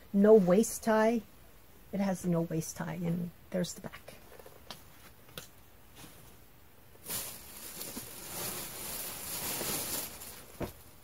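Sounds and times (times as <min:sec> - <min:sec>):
clothing rustling: 0:04.3 - 0:11.0.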